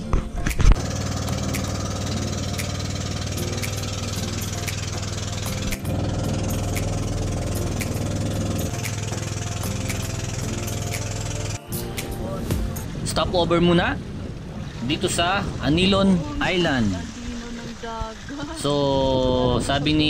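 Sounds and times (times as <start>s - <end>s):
motorboat engine running: 0.0s - 20.0s.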